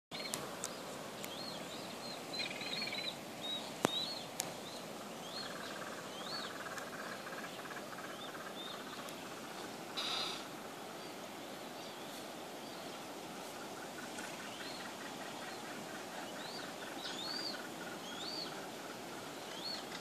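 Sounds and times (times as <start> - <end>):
birds chirping: 0.1 - 20.0
bird trill: 10.0 - 10.5.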